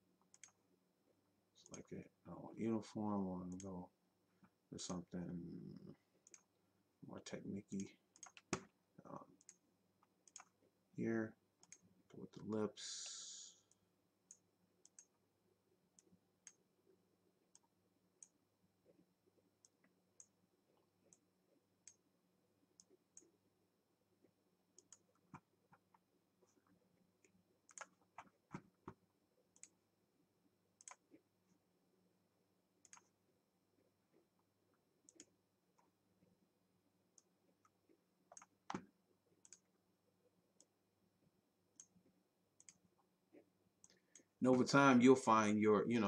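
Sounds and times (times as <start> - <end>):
low electrical hum: 0.0 - 46.0
computer mouse clicks: 0.2 - 0.6, 3.5 - 3.7, 6.2 - 6.5, 7.7 - 8.8, 9.4 - 10.6, 11.6 - 12.5, 13.7 - 15.2, 24.8 - 26.0, 26.6 - 29.8, 30.8 - 31.2, 32.8 - 33.2, 35.0 - 35.9, 37.2 - 39.7, 42.6 - 44.3.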